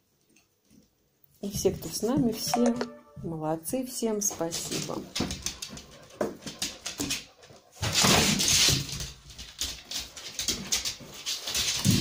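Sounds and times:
dog claws ticking on floor: 4.5s - 12.0s.

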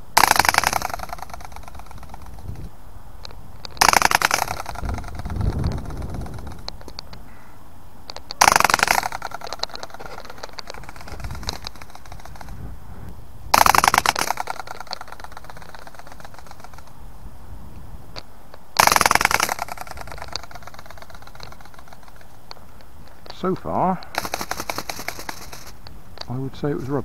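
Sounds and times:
toy ornithopter wings rattling: 0.0s - 2.6s, 3.6s - 7.0s, 8.1s - 12.6s, 13.5s - 16.9s, 18.8s - 22.4s, 24.1s - 26.3s.

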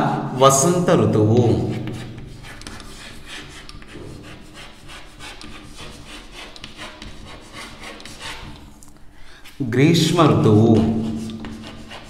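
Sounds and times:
chalk scratching on chalkboard: 1.4s - 8.8s, 10.5s - 12.0s.

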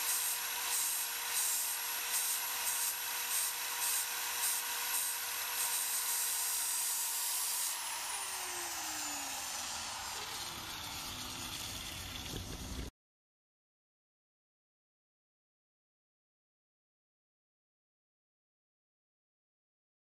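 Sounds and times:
angle grinder cutting steel: 0.0s - 12.9s.

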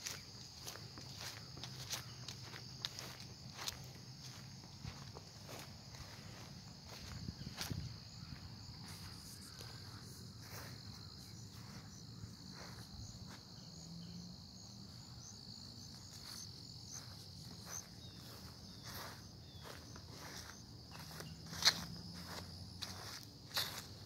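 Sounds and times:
footsteps through grass: 0.0s - 24.0s
insects trilling: 0.0s - 24.0s.

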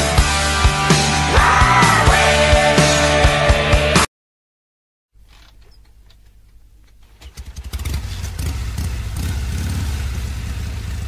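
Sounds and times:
motorcycle engine running: 7.0s - 11.0s.

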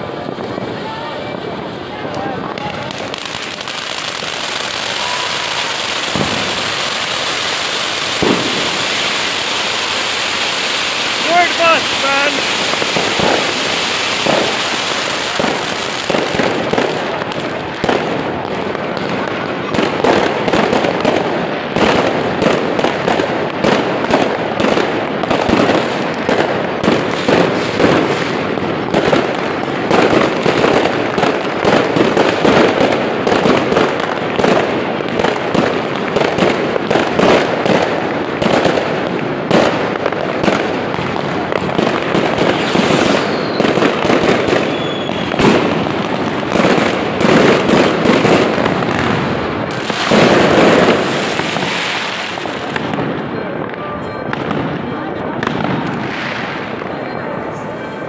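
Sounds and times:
fireworks bangs and crackles: 0.0s - 58.0s
spark fountain hissing: 3.0s - 15.7s.

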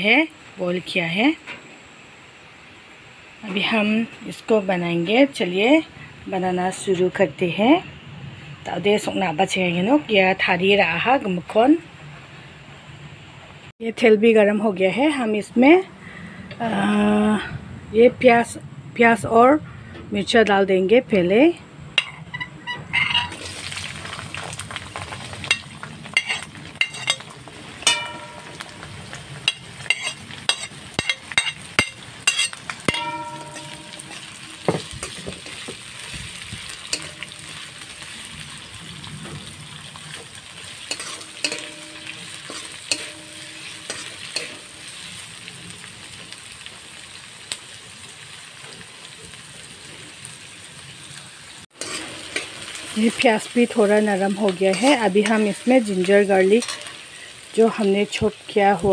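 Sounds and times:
onions sizzling in hot oil: 0.0s - 12.6s, 21.3s - 58.9s
steel ladle clinking on pan: 22.0s - 23.4s, 27.8s - 35.6s, 36.9s - 37.3s, 40.9s - 44.6s
ladle scraping pan: 22.0s - 23.5s, 25.4s - 28.6s, 29.4s - 35.8s, 40.8s - 44.7s, 51.7s - 53.2s, 54.6s - 55.9s, 56.6s - 57.0s.

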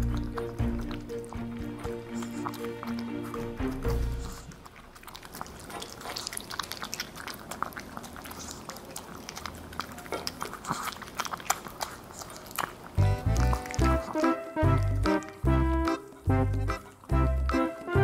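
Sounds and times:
music: 0.0s - 4.5s, 13.0s - 18.0s
dog chewing clicks: 0.0s - 18.0s.

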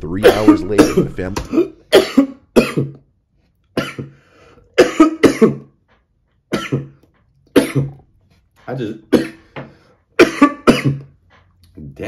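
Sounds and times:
man coughing: 0.0s - 3.1s, 3.7s - 4.2s, 4.8s - 5.8s, 6.5s - 8.1s, 9.1s - 9.6s, 10.2s - 11.2s
faint breath: 4.1s - 4.8s.

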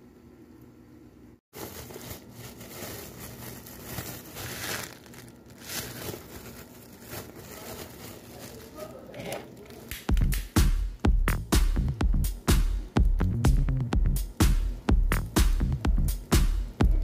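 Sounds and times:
plastic bag crinkling: 1.5s - 10.1s.

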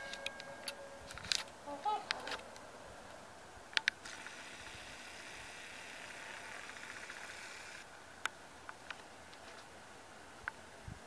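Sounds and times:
camera zoom motor whirring: 4.0s - 7.8s.

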